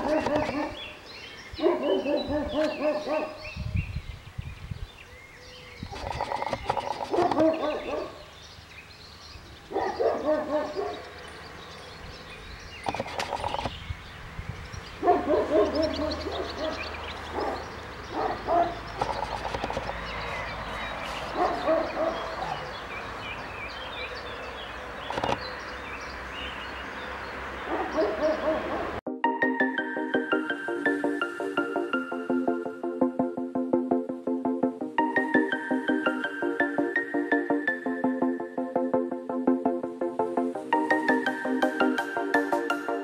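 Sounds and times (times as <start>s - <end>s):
animal calls: 0.0s - 3.6s, 5.3s - 8.4s, 9.5s - 13.8s, 14.9s - 29.0s.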